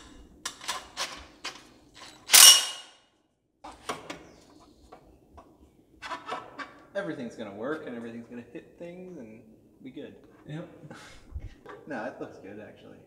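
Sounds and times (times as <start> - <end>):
loud ringing metallic clang: 2.3 - 3.0.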